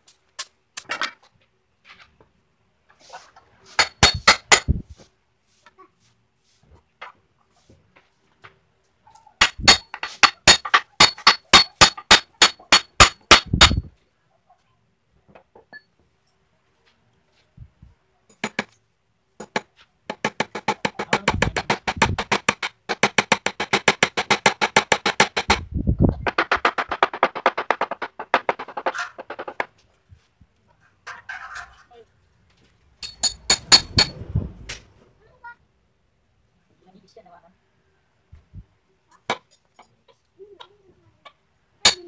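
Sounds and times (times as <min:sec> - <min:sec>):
hammer knocking on wooden frame: 0:09.4 - 0:13.9.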